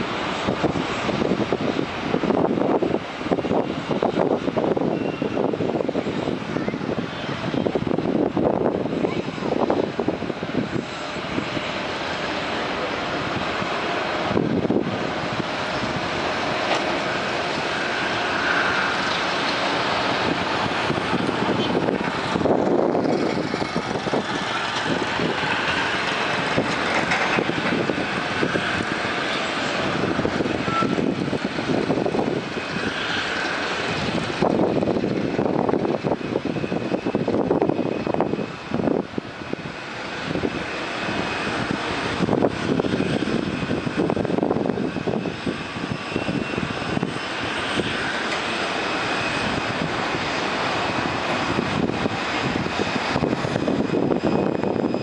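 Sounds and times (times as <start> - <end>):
jet aircraft rushing: 0.0 - 55.0
faint high whine: 27.9 - 34.5.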